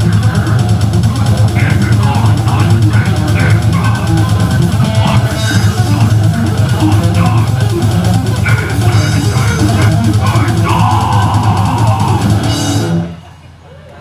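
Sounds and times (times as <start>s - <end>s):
live death metal band: 0.0s - 13.4s
singer's vocals into microphone: 1.6s - 7.7s, 8.4s - 13.0s.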